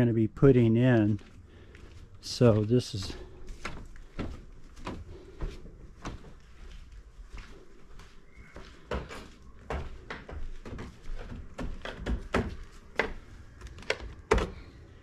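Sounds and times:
footsteps on wooden floor: 0:00.9 - 0:13.3.

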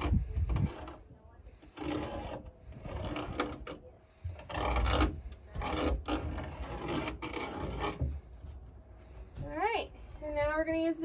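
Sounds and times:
saw cutting wood: 0:00.0 - 0:08.3.

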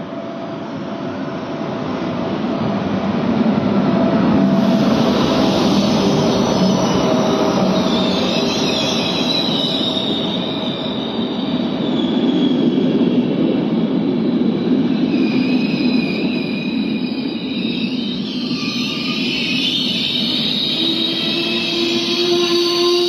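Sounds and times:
train wheels rumbling on rails: 0:00.0 - 0:23.0
high metallic squeal: 0:04.4 - 0:13.2, 0:14.8 - 0:23.0.

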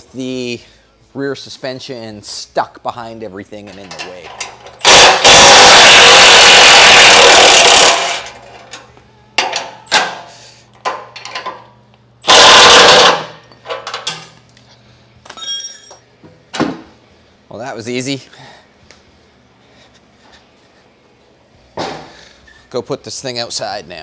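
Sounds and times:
impact wrench hammering bolts: 0:03.7 - 0:08.4, 0:12.2 - 0:14.3
metal clinks and knocks: 0:15.3 - 0:16.0.

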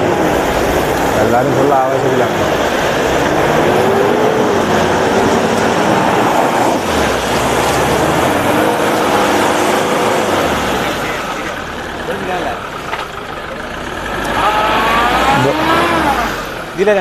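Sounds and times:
noisy wash of mud: 0:00.0 - 0:13.3
engine running hard under load: 0:00.0 - 0:17.0.

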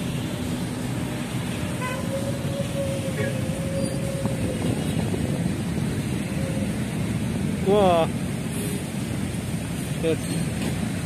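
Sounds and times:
drawn-out steady squeal: 0:00.0 - 0:10.8
rumble of traffic engines: 0:00.0 - 0:11.0.

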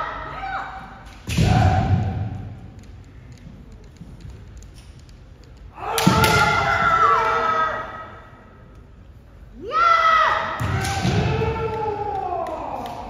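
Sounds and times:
people shouting: 0:05.7 - 0:08.2, 0:09.6 - 0:13.0.

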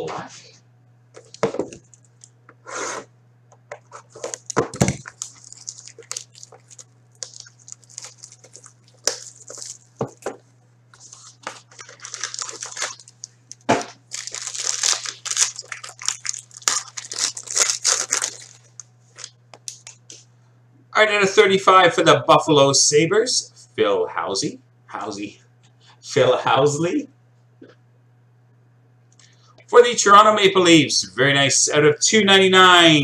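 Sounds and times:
steady low hum: 0:00.0 - 0:33.0
packaging tearing and crinkling: 0:03.8 - 0:10.2, 0:11.0 - 0:20.0.

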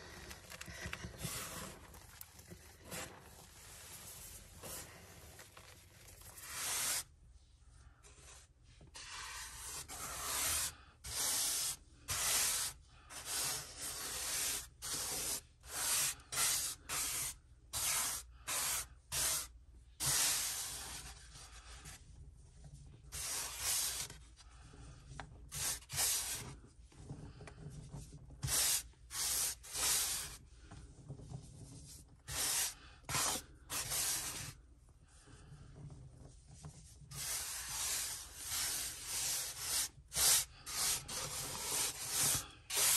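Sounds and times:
hands rubbing powder on board: 0:04.6 - 0:07.1, 0:09.0 - 0:22.0, 0:23.1 - 0:24.2, 0:25.5 - 0:26.5, 0:28.4 - 0:30.4, 0:31.4 - 0:34.5, 0:36.7 - 0:42.9.

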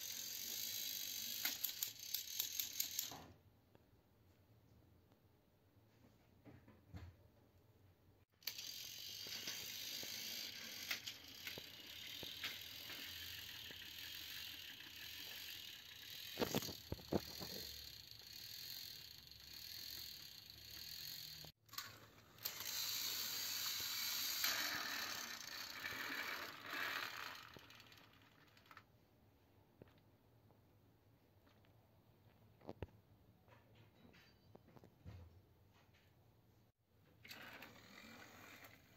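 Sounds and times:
toy train motors whirring: 0:00.0 - 0:03.3, 0:08.4 - 0:28.9, 0:37.2 - 0:38.9.

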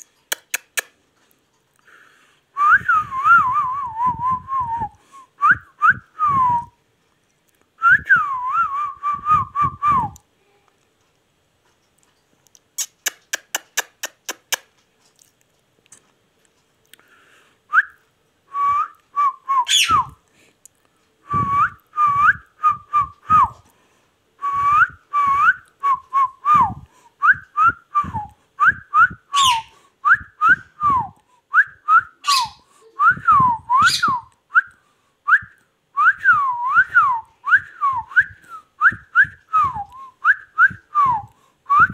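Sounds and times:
parakeet whistling: 0:19.6 - 0:20.1, 0:29.3 - 0:29.7, 0:32.2 - 0:32.6, 0:33.8 - 0:34.3.

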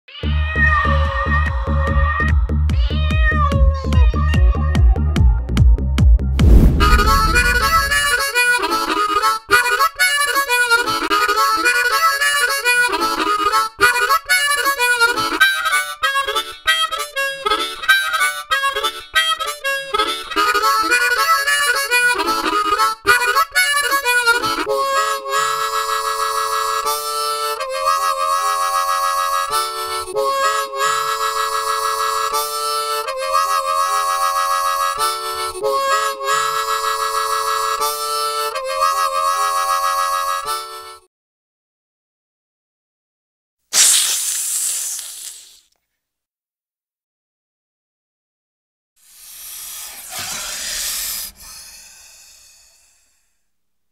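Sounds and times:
harmonica playing: 0:07.4 - 0:41.1.

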